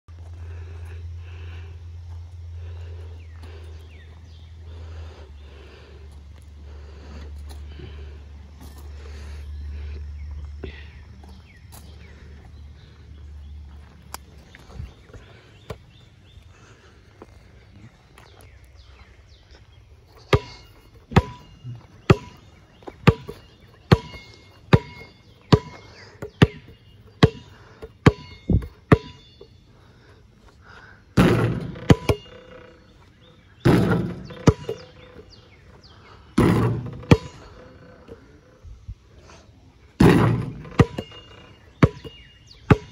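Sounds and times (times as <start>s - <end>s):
basketball bouncing on asphalt: 20.1s - 29.5s, 31.2s - 38.2s, 40.0s - 42.9s.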